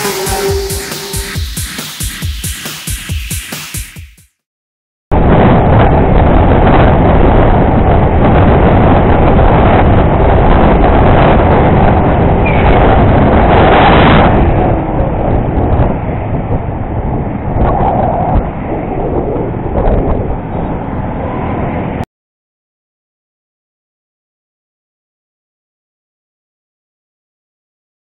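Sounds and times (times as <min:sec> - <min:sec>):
wind rush on microphone: 0:05.1 - 0:22.1.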